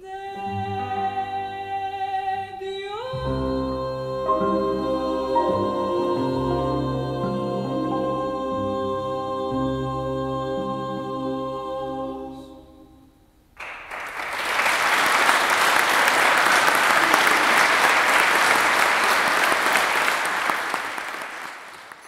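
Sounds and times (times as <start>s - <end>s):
choir singing chord: 3.1s - 13.0s
audience applause: 13.6s - 22.0s.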